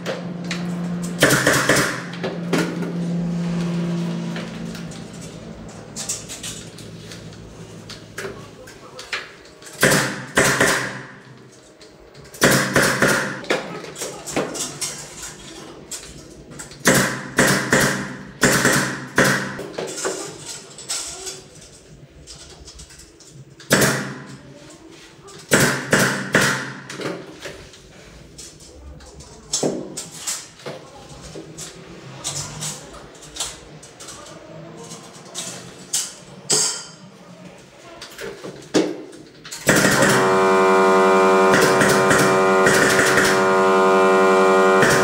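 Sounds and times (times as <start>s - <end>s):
pneumatic nail gun firing: 1.2s - 2.2s, 9.8s - 11.2s, 12.4s - 13.4s, 16.8s - 19.6s, 25.5s - 26.9s, 39.6s - 40.6s, 41.4s - 43.7s, 44.7s - 45.0s.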